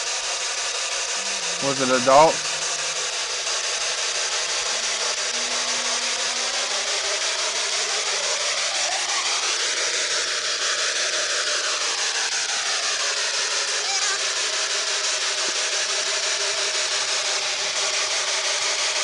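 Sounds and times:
rising and falling tones: 0.6s - 10.1s
low steady hum: 0.7s - 8.4s
radio static hiss: 0.7s - 9.0s.

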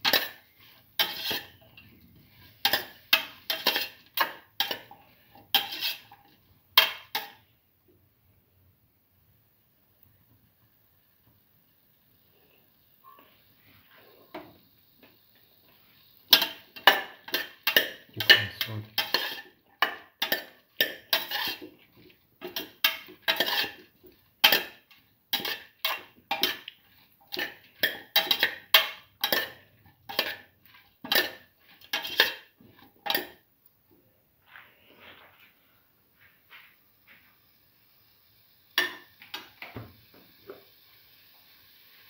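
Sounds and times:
spoon scraping a cooking pot: 0.0s - 7.4s, 16.2s - 33.4s.

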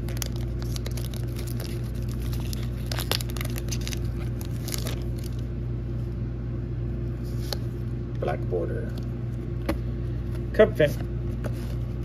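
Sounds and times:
foil wrapper tearing and crinkling: 0.0s - 5.5s
steady low hum: 0.0s - 12.0s.

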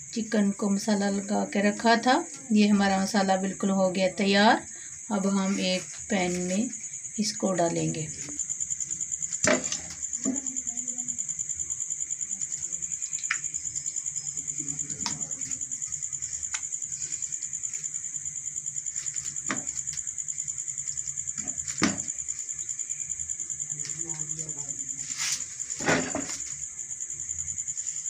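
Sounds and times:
high-pitched insect chirping: 0.0s - 28.0s.

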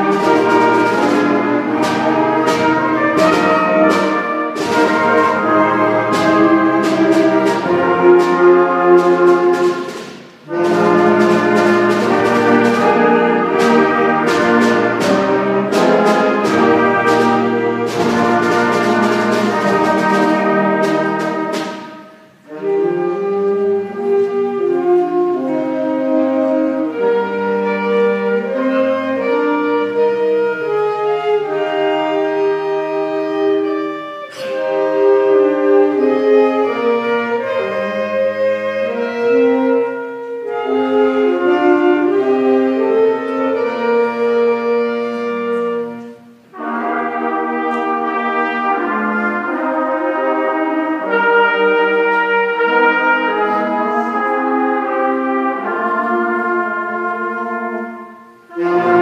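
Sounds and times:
concert band playing held chords: 0.0s - 25.6s.

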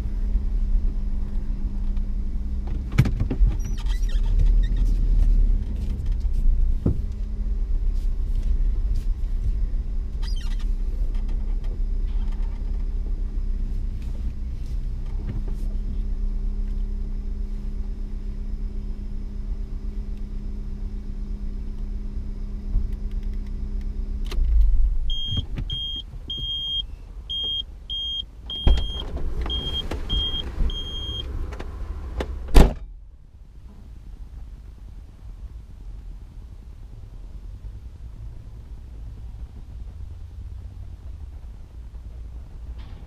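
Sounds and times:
short high beeps: 25.1s - 31.2s.

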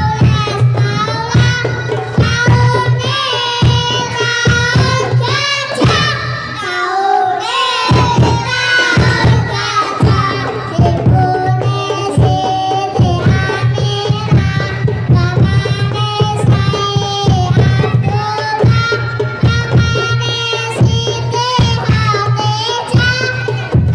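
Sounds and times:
children singing: 0.0s - 23.9s
frame drums beating: 0.0s - 23.9s.

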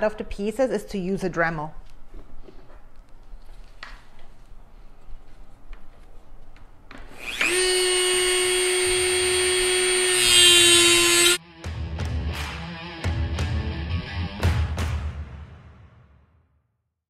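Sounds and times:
rotary tool cutting plywood: 7.0s - 11.4s
rotary tool motor whining: 7.1s - 11.4s.

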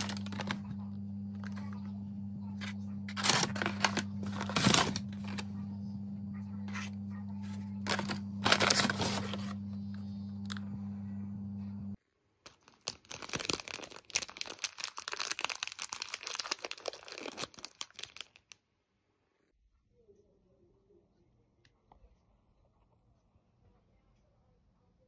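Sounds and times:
carrier bag rustling: 0.0s - 0.7s, 3.1s - 5.6s, 7.5s - 10.7s, 12.5s - 18.6s
plastic packet crinkling: 0.0s - 0.7s, 1.3s - 1.8s, 3.1s - 5.5s, 7.8s - 9.7s, 12.5s - 18.6s
steady low hum: 0.0s - 12.0s.

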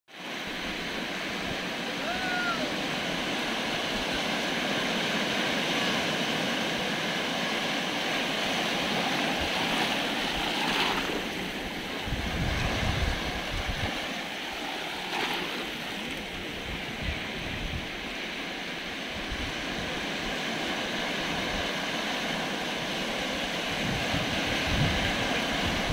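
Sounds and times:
surf breaking on rocky shore: 0.2s - 25.9s
wind buffeting microphone: 8.8s - 21.9s, 22.8s - 25.9s.

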